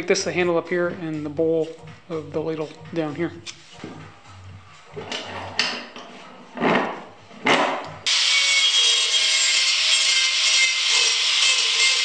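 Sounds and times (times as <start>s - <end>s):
angle grinder cutting wood: 8.1s - 12.0s.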